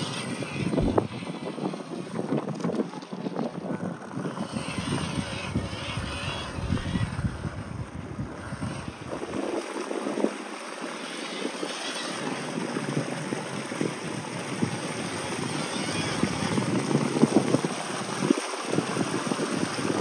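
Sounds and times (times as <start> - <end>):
rc car driving over rock: 0.0 - 20.0
wind buffeting microphone: 0.0 - 20.0.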